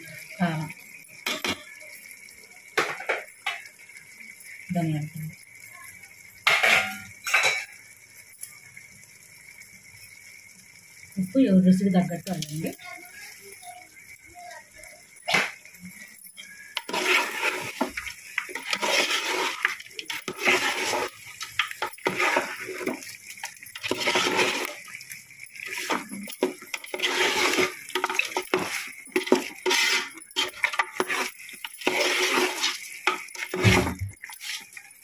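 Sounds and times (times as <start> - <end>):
metal spoon scraping pot: 1.2 - 1.7, 16.4 - 34.9
metal clinking: 15.1 - 35.0.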